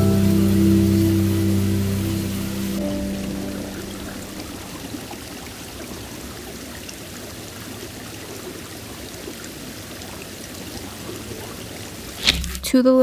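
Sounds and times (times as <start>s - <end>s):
stream flowing over rocks: 0.0s - 12.7s.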